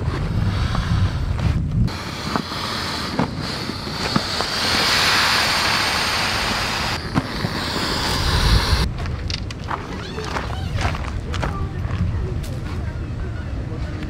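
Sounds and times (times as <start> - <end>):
air rushing out of inflatable: 0.0 - 8.9.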